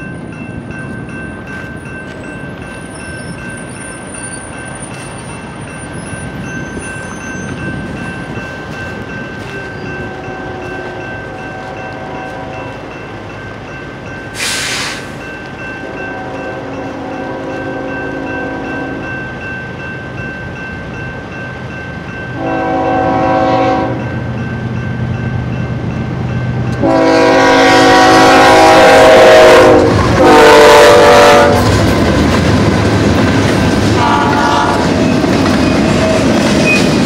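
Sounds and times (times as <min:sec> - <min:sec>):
railroad crossing bells ringing: 0:00.0 - 0:37.0
train rumble: 0:00.0 - 0:37.0
locomotive horn: 0:09.9 - 0:12.7, 0:15.8 - 0:19.1, 0:22.4 - 0:24.1, 0:26.8 - 0:31.8, 0:34.0 - 0:35.0
sharp hiss: 0:14.3 - 0:15.3.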